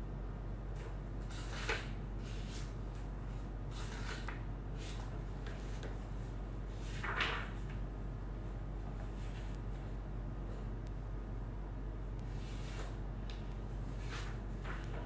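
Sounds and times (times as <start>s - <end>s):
steady low hum: 0.0s - 15.0s
paper pages rustling: 6.7s - 7.8s, 12.4s - 15.0s.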